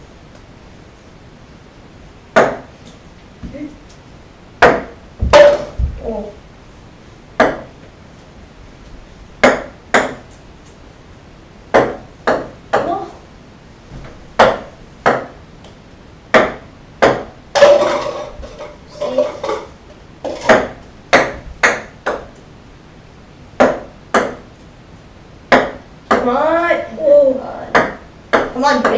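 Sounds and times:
ping pong balls bouncing on wood: 2.3 - 2.7, 4.6 - 6.0, 7.4 - 7.9, 9.4 - 10.4, 11.7 - 13.2, 14.4 - 22.4, 23.6 - 24.5, 25.5 - 26.4, 27.7 - 28.9.

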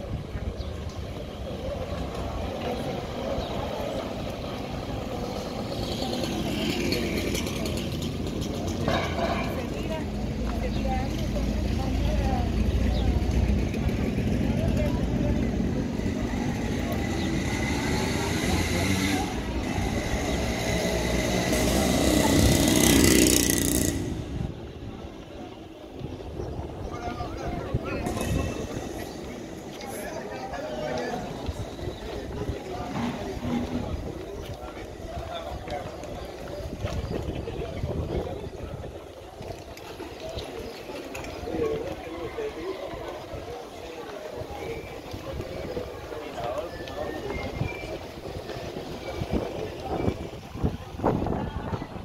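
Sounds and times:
street noise: 0.0 - 52.0
small motorcycle passing: 2.5 - 10.0, 12.4 - 24.6.

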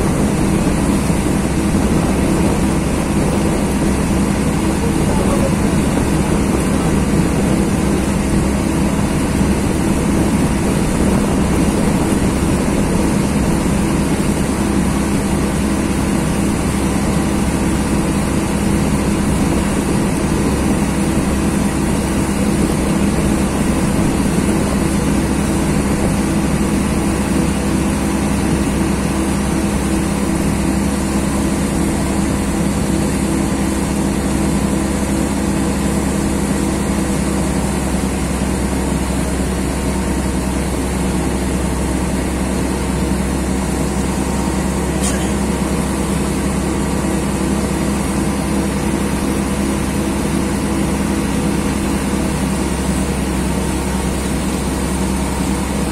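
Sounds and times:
boat motor droning: 0.0 - 55.9
brief click: 45.0 - 45.3.

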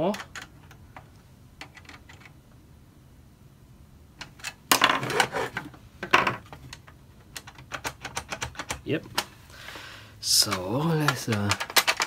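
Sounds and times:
tools clattering on wooden table: 4.7 - 6.7.

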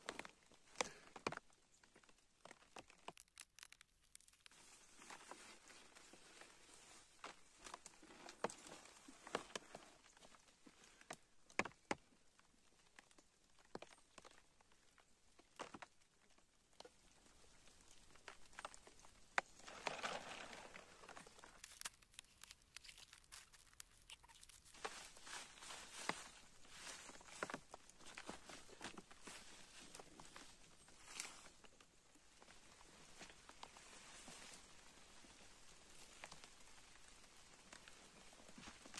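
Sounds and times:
plastic bag crinkling: 2.4 - 5.5, 19.4 - 26.2
footsteps on dry leaf litter: 18.8 - 30.0.

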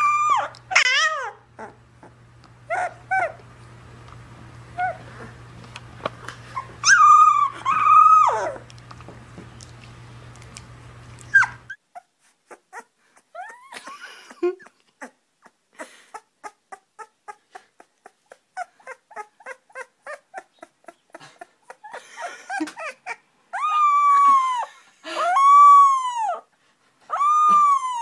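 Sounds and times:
puppy falling cry: 0.0 - 1.8, 6.6 - 8.7, 21.9 - 26.5, 27.1 - 28.0
puppies whimpering: 0.0 - 3.4, 4.8 - 5.4, 6.5 - 8.7, 11.2 - 13.9, 15.8 - 26.5, 27.1 - 28.0.

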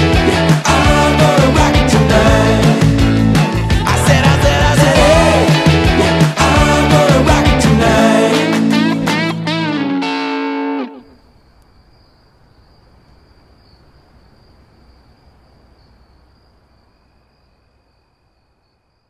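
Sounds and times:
music: 0.0 - 11.1
crickets chirring: 11.0 - 19.0.

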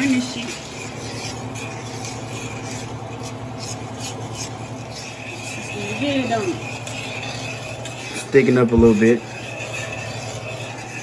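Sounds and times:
spoon scraping saucepan: 0.0 - 11.0
steady low hum: 0.0 - 11.0.

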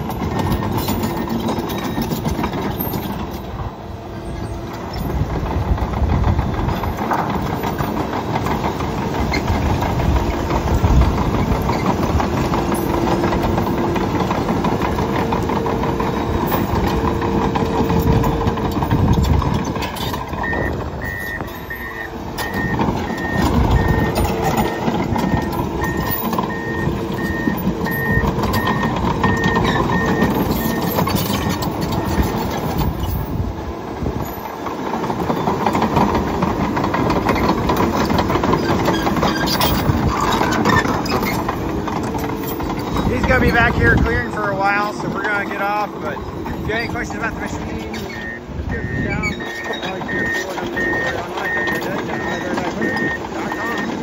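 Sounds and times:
bulldozer diesel engine under load: 0.0 - 54.0
backup alarm beeping: 20.3 - 32.4, 48.1 - 54.0.

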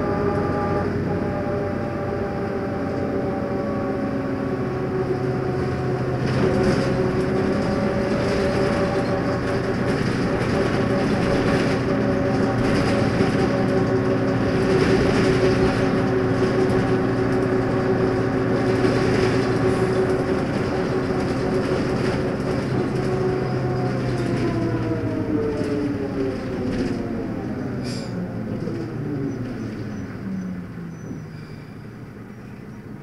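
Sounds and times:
bus diesel engine running: 0.0 - 33.0.

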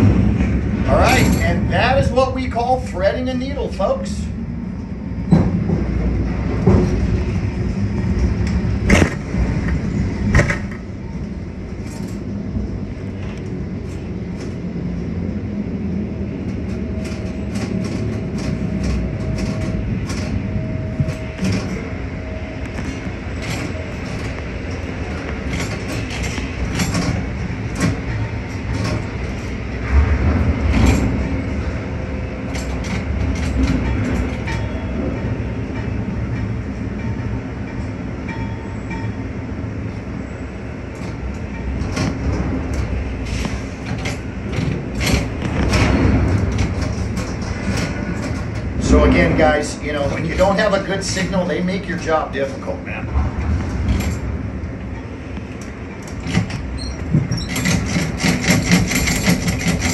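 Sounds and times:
crane low rumble: 0.0 - 59.9
metal clicks and clanks: 22.6 - 31.4, 32.5 - 34.8, 41.0 - 48.8, 53.1 - 59.9.

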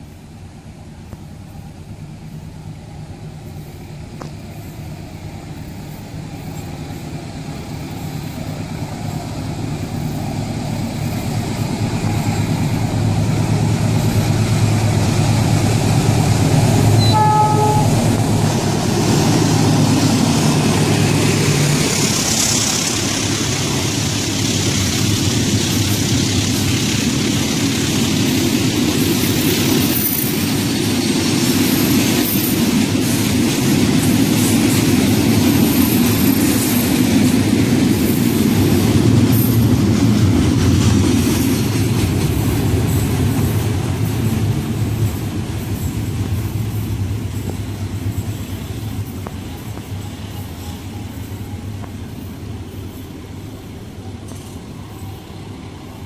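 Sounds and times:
diesel locomotive engine drone: 0.0 - 56.0
train horn toot: 16.9 - 18.2.

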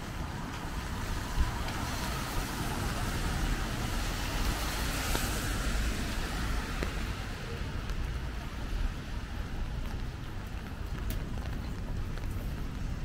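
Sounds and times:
tyre hiss on wet road: 1.0 - 7.8.

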